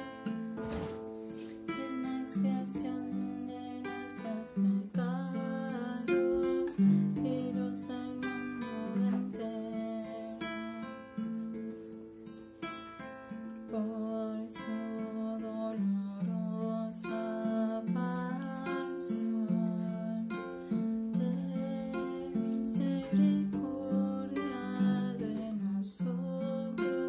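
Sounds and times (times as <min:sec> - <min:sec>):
acoustic guitar playing: 0:00.0 - 0:27.0.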